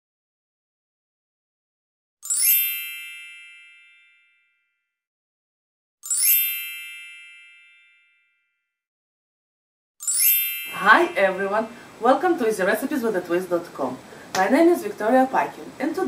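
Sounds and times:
bright bell-like chime: 2.2s - 5.0s, 6.0s - 8.7s, 10.0s - 11.4s.

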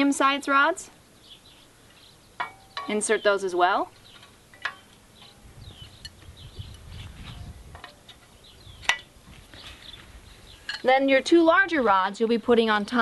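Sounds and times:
faint bird chirps: 1.1s - 7.6s.

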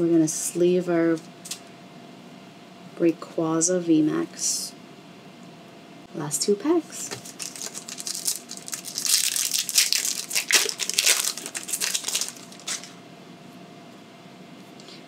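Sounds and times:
foil wrapper crinkling: 7.1s - 13.0s.

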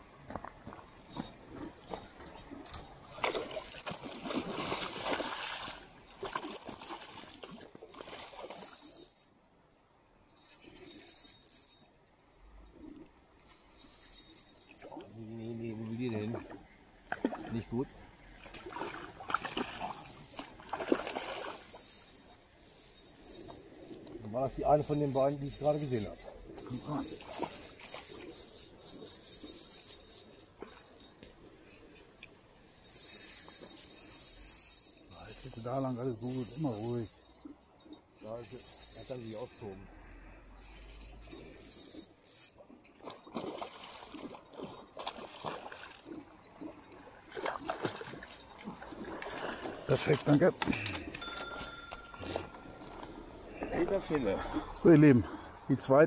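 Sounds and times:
water splashing: 0.3s - 9.0s, 14.7s - 22.6s, 42.5s - 56.0s.

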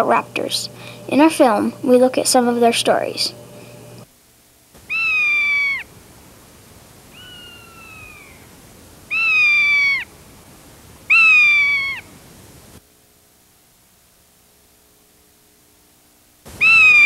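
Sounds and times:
bird of prey screaming: 4.8s - 5.9s, 7.1s - 8.5s, 9.1s - 10.1s, 11.1s - 12.1s, 16.6s - 17.0s.

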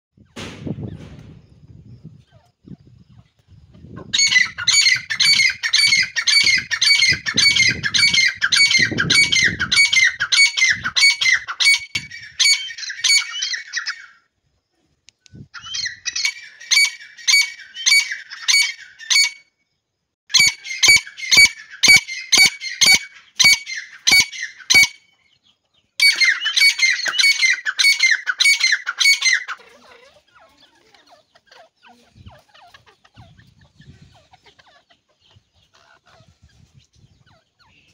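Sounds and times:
francolin calling shrill notes: 20.3s - 25.1s, 26.0s - 29.6s.

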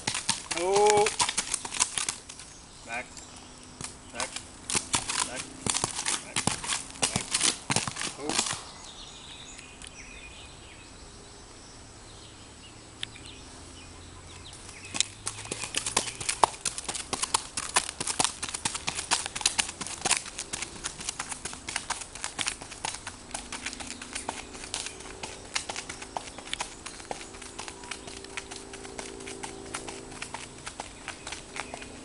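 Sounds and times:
hooves clip-clopping on gravel: 0.0s - 8.7s, 14.3s - 32.0s.

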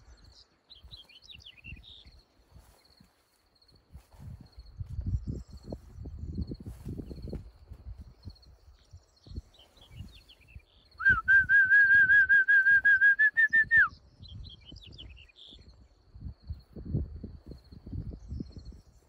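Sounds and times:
faint bird chirps: 0.0s - 7.3s, 8.0s - 11.2s, 13.6s - 16.6s
footsteps: 2.4s - 5.2s
man's warbling whistle: 11.0s - 13.9s.

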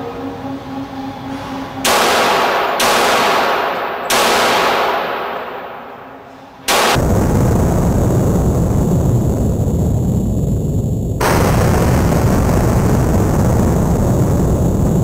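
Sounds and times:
pistol shots: 1.9s - 7.0s.

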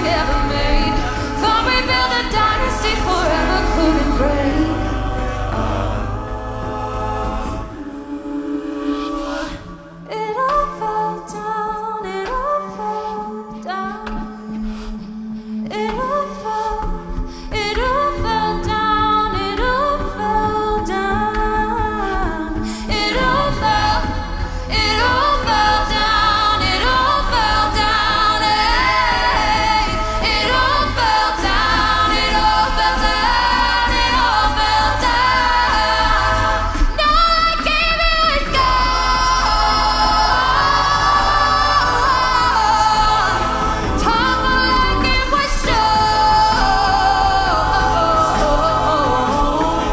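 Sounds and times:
a cappella group singing: 0.0s - 49.9s
beatbox percussion: 0.0s - 49.9s
bass voice sliding down: 23.0s - 27.1s.

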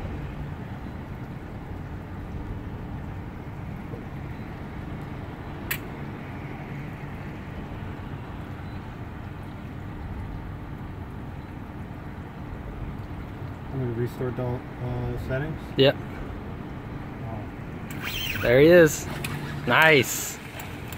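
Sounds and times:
sharp click: 5.7s - 5.9s.

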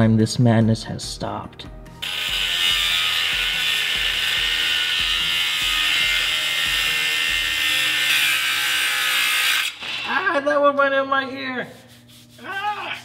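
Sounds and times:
angle grinder cutting steel: 2.0s - 10.3s.

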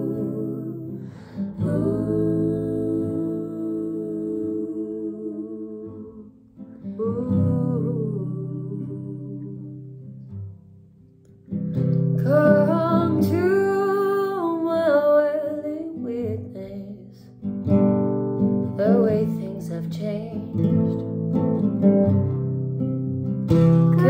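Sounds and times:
woman singing: 0.0s - 10.4s, 12.2s - 17.4s, 18.7s - 20.9s
acoustic guitar strumming: 17.4s - 24.0s.

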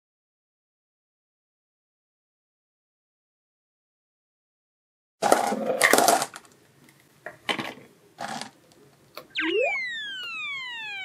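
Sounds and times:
plastic toy balls clattering: 5.2s - 6.6s, 7.5s - 8.6s
cartoon descending whistle: 9.3s - 11.0s.

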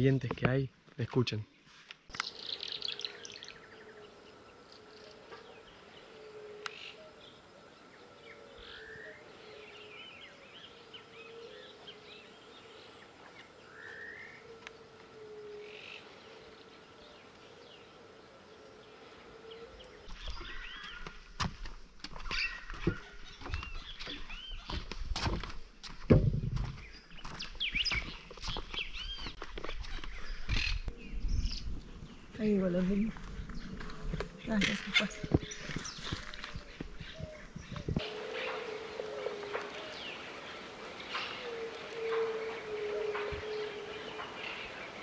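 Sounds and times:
distant birds chirping: 0.0s - 25.0s, 25.7s - 45.0s
insect buzz: 2.1s - 20.5s, 38.0s - 45.0s
footsteps on wooden boardwalk: 20.0s - 30.7s, 33.0s - 45.0s.

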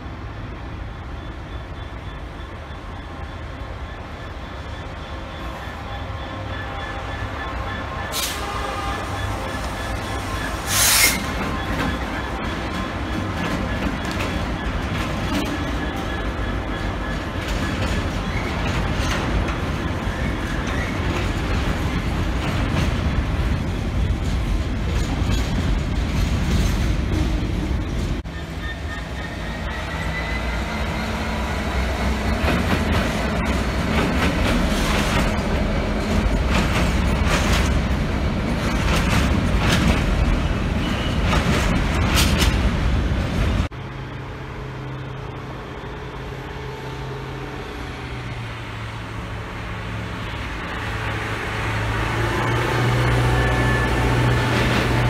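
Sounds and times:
train wheels clattering over rails: 10.2s - 28.3s, 31.7s - 43.7s.

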